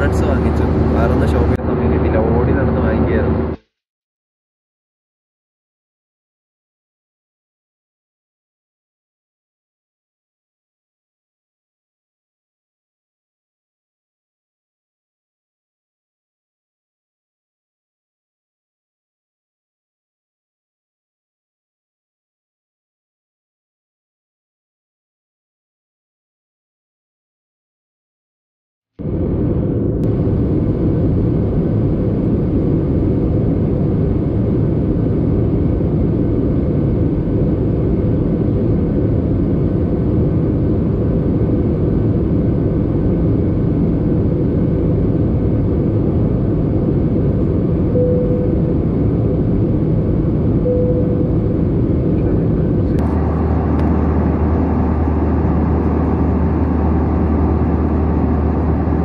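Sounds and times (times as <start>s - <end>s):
airliner cabin engine noise: 0.0s - 3.6s, 29.0s - 59.0s
drone with low hum: 0.0s - 3.6s, 29.0s - 59.0s.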